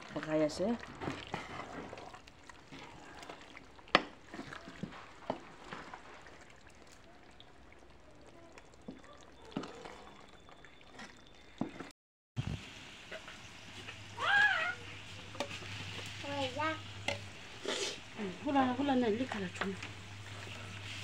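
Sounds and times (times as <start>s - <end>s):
wooden spatula scraping a pot: 0.0s - 6.5s, 15.2s - 21.0s
curry simmering and sizzling: 0.0s - 21.0s.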